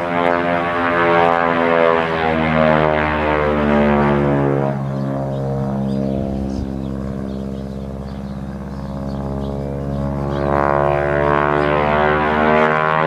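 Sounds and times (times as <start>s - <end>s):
propeller plane engine drone: 0.0s - 13.0s.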